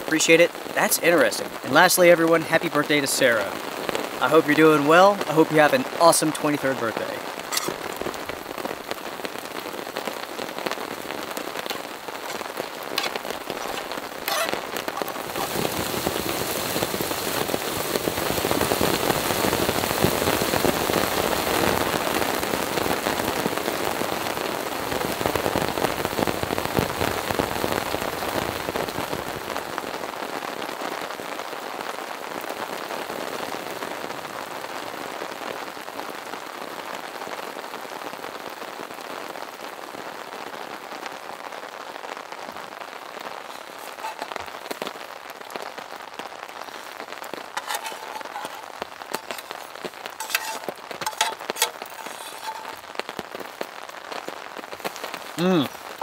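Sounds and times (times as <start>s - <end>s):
heavy rain on a tarp: 0.0s - 56.0s
single raindrops: 5.6s - 22.7s, 43.1s - 56.0s.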